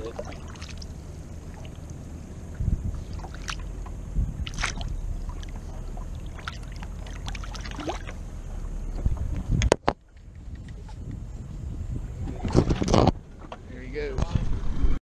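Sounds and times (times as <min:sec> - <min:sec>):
water splashing: 0:00.0 - 0:09.5
wind rumble on microphone: 0:00.0 - 0:15.0.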